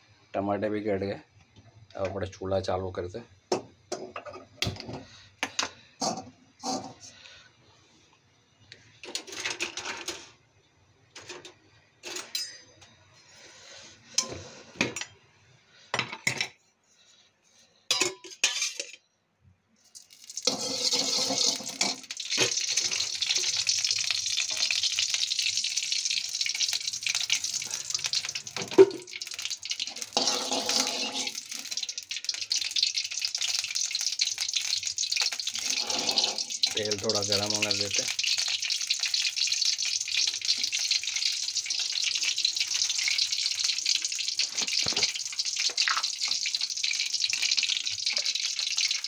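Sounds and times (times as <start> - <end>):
metal spoon clinking: 12.0 - 12.8
oil pouring into pan: 19.9 - 49.0
gas stove hiss: 20.0 - 39.2.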